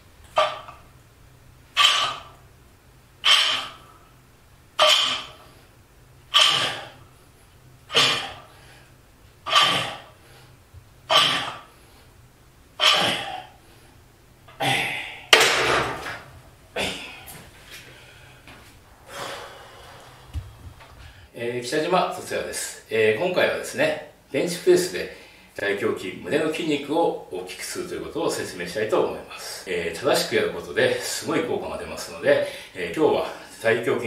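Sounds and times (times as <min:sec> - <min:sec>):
man breathing forcefully: 0:04.8 - 0:12.2, 0:16.9 - 0:21.3.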